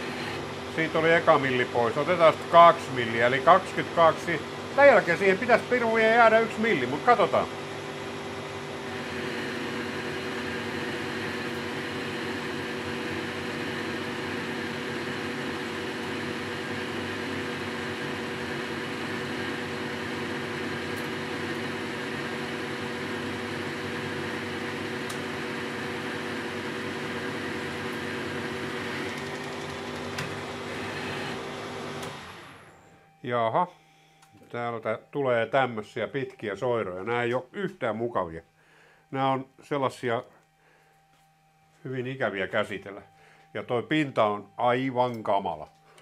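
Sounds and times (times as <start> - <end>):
lathe humming: 0.0 - 33.0.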